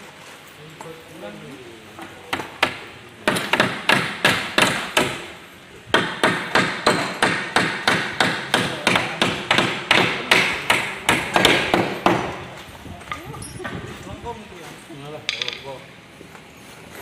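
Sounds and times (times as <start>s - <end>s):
hammer blows on wooden crate: 2.2s - 5.3s, 5.9s - 12.6s.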